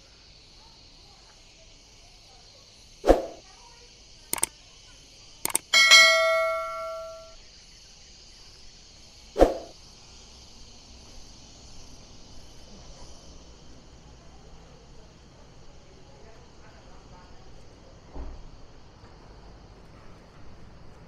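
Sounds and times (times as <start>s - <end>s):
sharp clicks: 5.5s - 7.3s
metal struck ringing like a bell: 5.7s - 7.4s.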